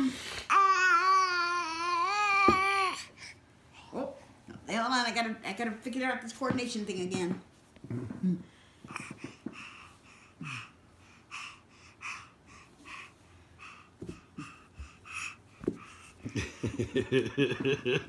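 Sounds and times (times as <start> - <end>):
baby breathing in huffs: 8.6 - 16.4.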